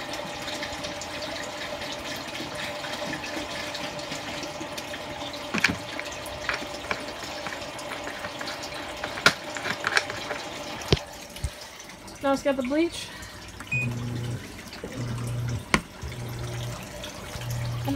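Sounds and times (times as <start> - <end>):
washing machine water swishing: 0.0 - 17.9
faint steady hum: 4.8 - 17.9.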